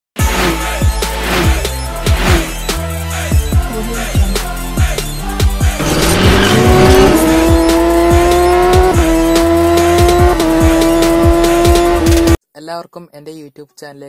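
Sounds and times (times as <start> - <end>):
race car engine revving: 0.2 - 2.8, 5.7 - 12.4
electronic beat: 0.8 - 12.4.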